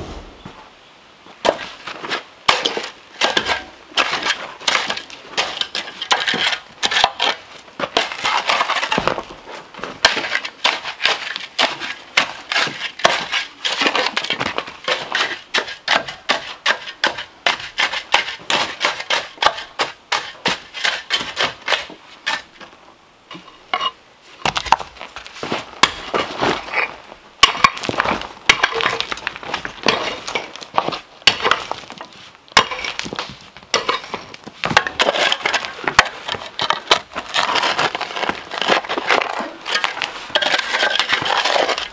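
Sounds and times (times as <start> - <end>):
gravel crunching and clinking: 23.3 - 41.9
shovel digging into stony soil: 32.6 - 41.9.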